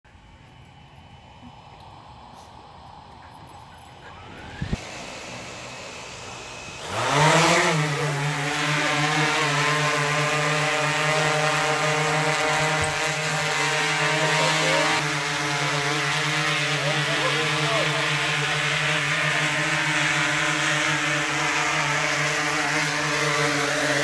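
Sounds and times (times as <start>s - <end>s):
drone propellers humming: 0.1s - 24.0s.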